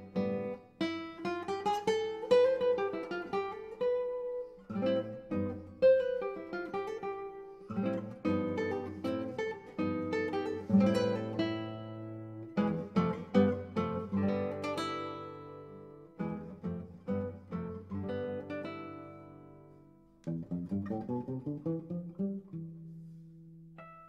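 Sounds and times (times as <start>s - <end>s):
acoustic guitar plucking: 0.0s - 24.0s.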